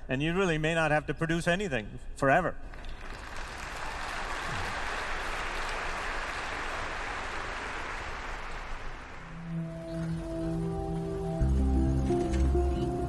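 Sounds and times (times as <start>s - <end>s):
large audience applauding: 2.7s - 10.1s.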